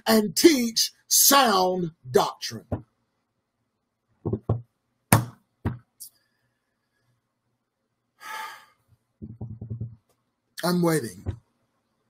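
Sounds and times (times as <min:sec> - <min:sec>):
soft knocks: 0:04.2 - 0:05.8, 0:09.2 - 0:10.1.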